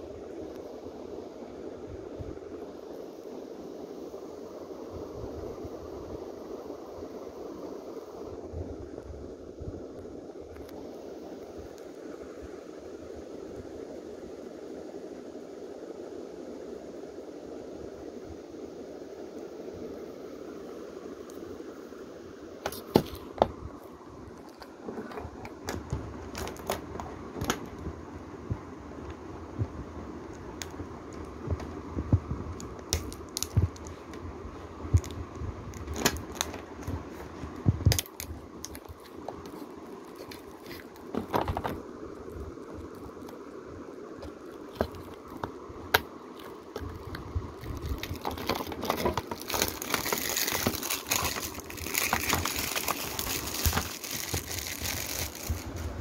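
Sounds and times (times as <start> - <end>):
plastic film crinkling: 24.4 - 27.9, 32.6 - 34.1, 35.0 - 43.4, 44.2 - 56.0
plastic shrink-wrap tearing: 25.6 - 27.7, 46.4 - 55.9.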